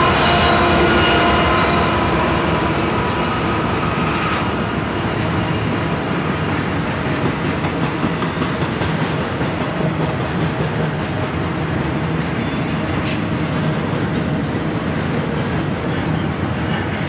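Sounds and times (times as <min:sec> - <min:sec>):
locomotives running with whine: 0:00.0 - 0:15.7
train wheels clattering on rails: 0:05.3 - 0:17.0.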